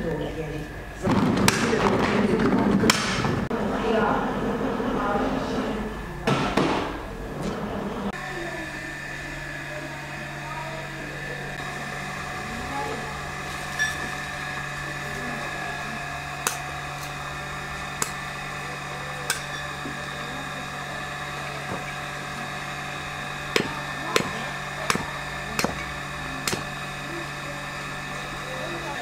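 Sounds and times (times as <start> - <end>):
steady hum: 0.0 - 29.0
hatchet chopping kindling: 17.9 - 18.2, 19.2 - 19.5, 23.5 - 26.8.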